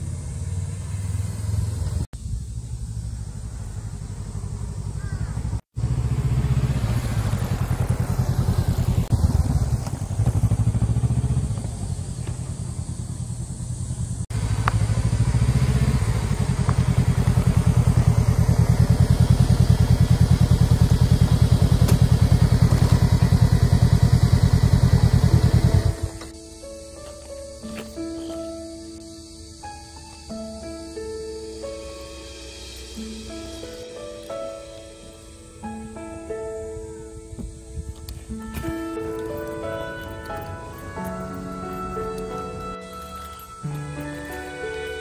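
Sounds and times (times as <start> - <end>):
motorcycle engine pulsing: 0.0 - 26.5.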